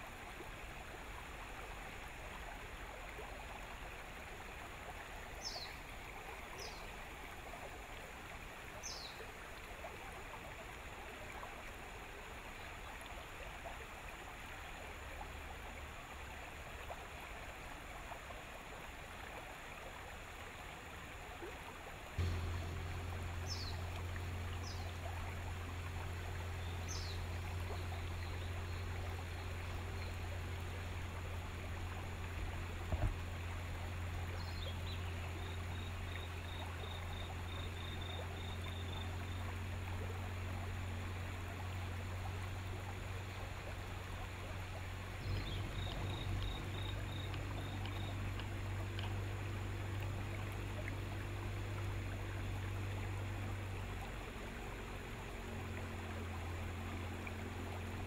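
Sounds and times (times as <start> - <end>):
rushing water: 0.0 - 58.0
wind: 0.0 - 58.0
birds calling: 22.2 - 30.3, 45.2 - 48.6
boat motor humming: 22.2 - 58.0.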